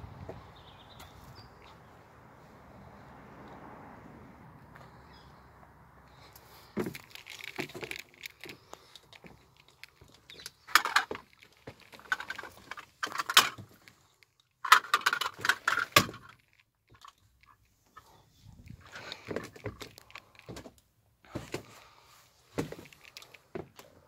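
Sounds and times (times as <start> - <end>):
rustling of movement: 6.0 - 24.0.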